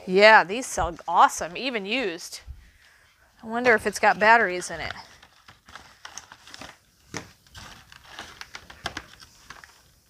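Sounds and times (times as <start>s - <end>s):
cardboard and paper rustling: 3.6s - 10.0s.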